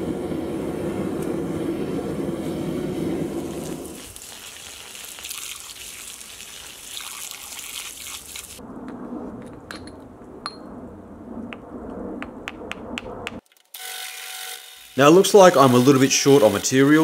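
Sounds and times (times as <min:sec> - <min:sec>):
water hissing on hot metal: 0:00.0 - 0:08.6.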